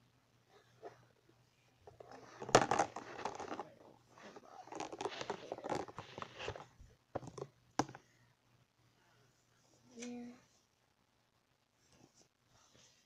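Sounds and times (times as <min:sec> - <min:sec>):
material crinkling and rustling: 0:01.8 - 0:07.5.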